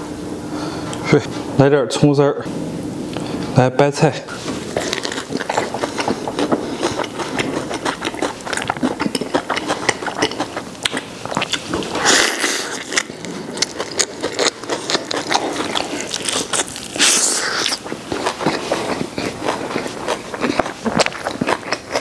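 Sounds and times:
crunchy chewing: 4.4 - 22.0.

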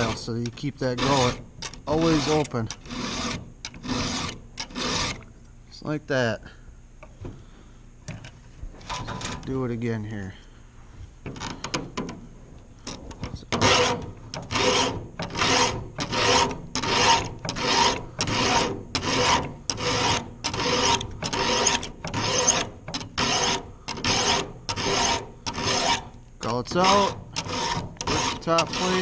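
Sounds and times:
file rasping on saw chain: 0.0 - 5.2, 13.5 - 29.0.

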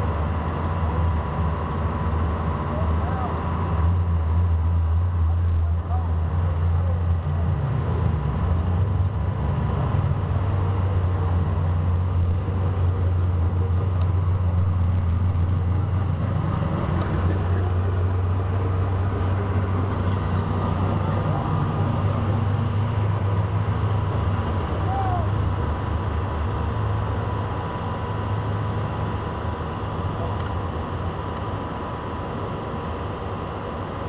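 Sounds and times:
low engine drone: 0.0 - 34.0
faint clicks: 26.4 - 26.7.

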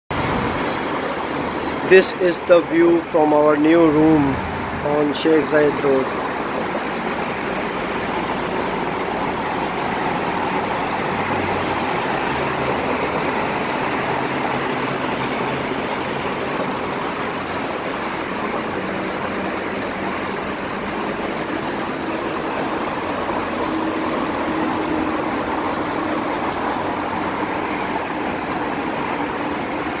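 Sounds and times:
highway traffic noise: 0.1 - 30.0
single vehicles humming: 0.1 - 30.0.

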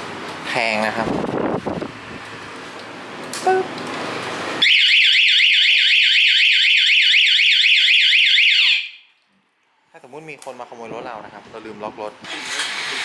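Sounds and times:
warbling alarm siren: 4.6 - 9.1.

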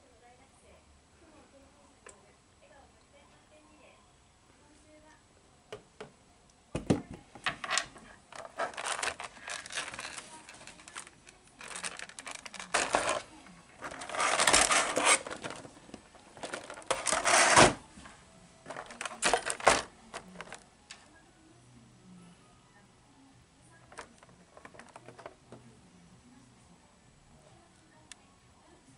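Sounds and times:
plastic packaging crinkling: 8.3 - 17.8, 18.6 - 20.6, 23.8 - 25.3.

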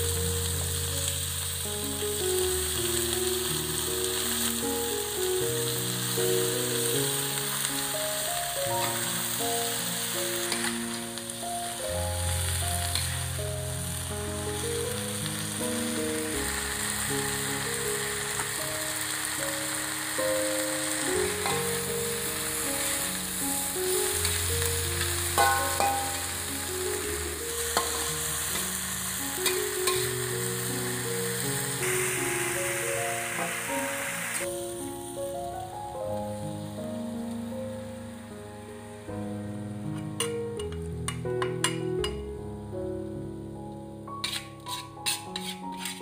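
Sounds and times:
vegetables sizzling in a wok: 0.0 - 42.4, 43.1 - 46.0
soft music: 0.0 - 46.0
metal spatula scraping a wok: 10.4 - 11.0, 12.8 - 13.4, 20.9 - 32.1, 44.2 - 46.0
spatula clinking against pan: 25.4 - 26.3, 44.2 - 46.0.

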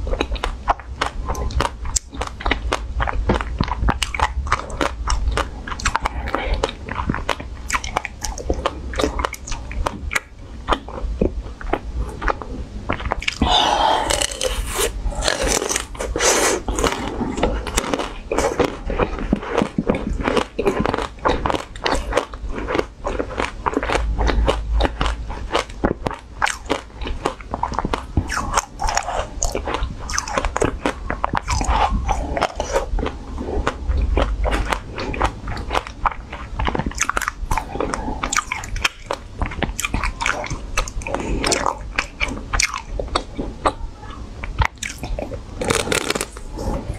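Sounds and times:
mouth sounds: 0.0 - 19.9, 43.1 - 46.9
crunching frozen ice cream: 0.0 - 46.8.

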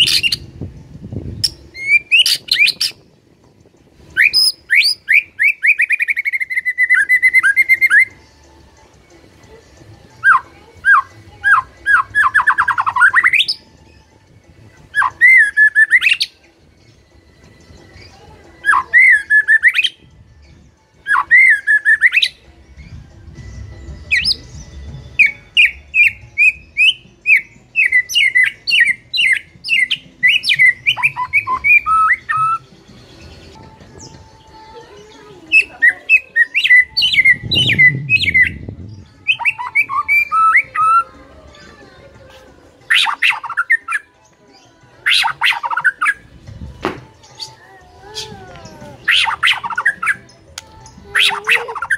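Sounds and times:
bird singing whistled phrases: 1.4 - 3.0, 4.1 - 8.2, 10.2 - 13.6, 14.9 - 16.4, 18.0 - 20.0, 21.0 - 23.0, 24.1 - 32.7, 35.5 - 41.1, 42.9 - 44.1, 45.0 - 46.2, 47.3 - 50.4.

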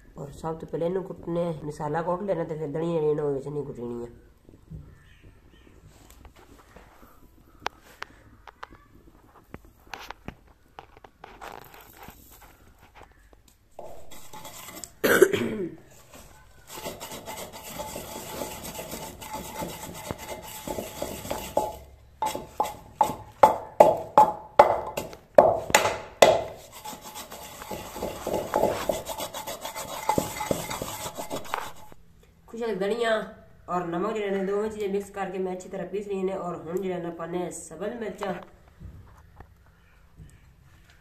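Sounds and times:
pestle grinding seeds in mortar: 13.8 - 15.0, 15.8 - 32.0.

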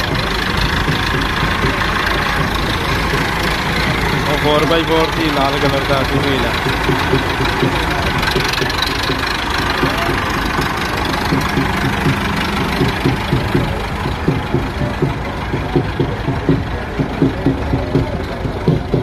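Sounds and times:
diesel tractor engine chugging: 0.0 - 19.0.

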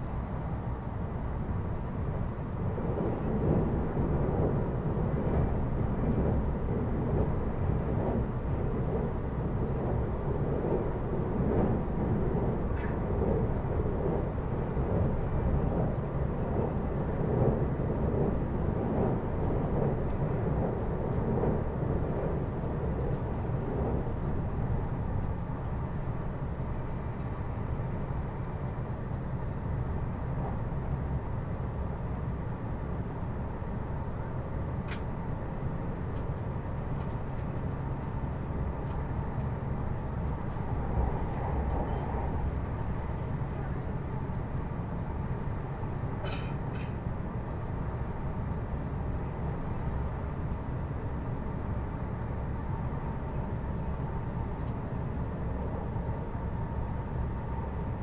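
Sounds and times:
train wheel and rail rumble: 0.0 - 58.0
sharp click: 34.9 - 35.1.

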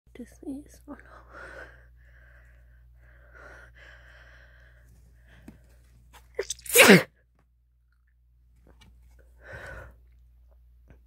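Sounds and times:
breathy build-up breaths: 1.2 - 5.8
woman sneezing: 6.4 - 7.1.

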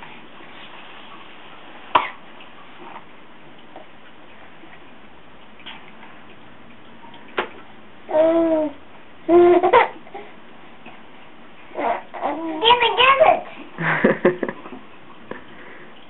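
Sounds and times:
baby vocalizing: 8.1 - 10.3, 11.7 - 13.0.

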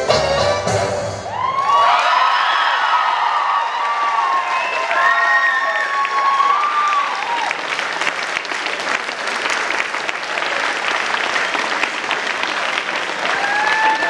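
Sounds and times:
voices cheering and whooping: 1.3 - 7.6, 13.3 - 14.0
audience clapping: 1.8 - 14.0.

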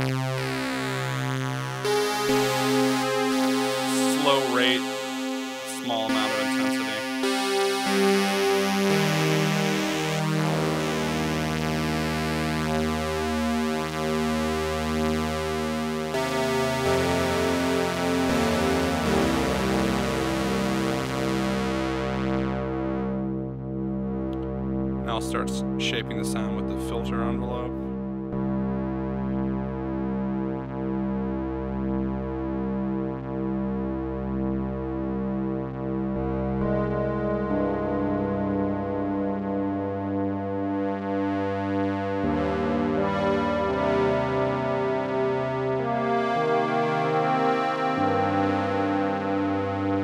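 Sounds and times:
synth chord pad: 0.0 - 25.2, 26.1 - 50.0
wavering synthesizer pad note: 1.8 - 11.6.

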